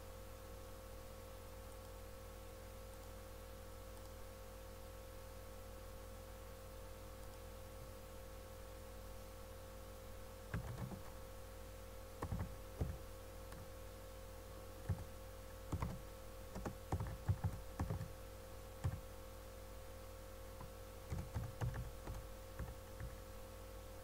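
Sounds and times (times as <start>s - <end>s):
steady low hum: 0.0s - 24.0s
typing on computer keyboard: 10.5s - 11.1s, 12.2s - 13.6s, 14.9s - 15.1s, 15.7s - 18.1s, 18.8s - 19.0s, 20.6s - 23.2s.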